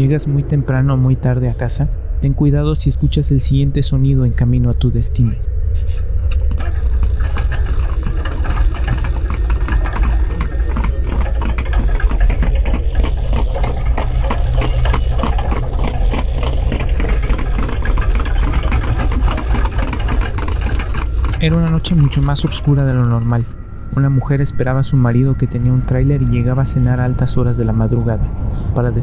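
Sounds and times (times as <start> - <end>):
low steady rumble: 0.0 - 29.0
horse hooves clattering: 5.8 - 24.2
wooden carriage wheels: 5.8 - 28.2.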